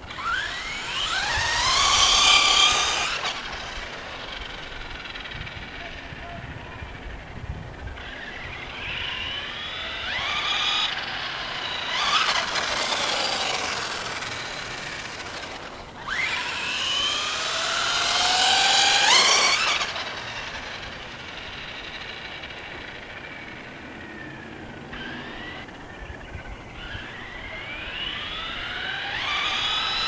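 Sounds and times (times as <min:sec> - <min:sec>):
electric motor whining: 0:00.0 - 0:30.0.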